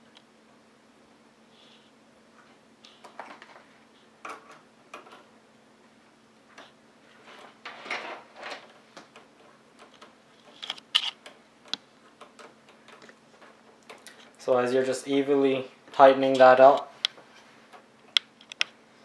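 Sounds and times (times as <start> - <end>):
screwdriver clicking and scraping screw: 9.8 - 11.3.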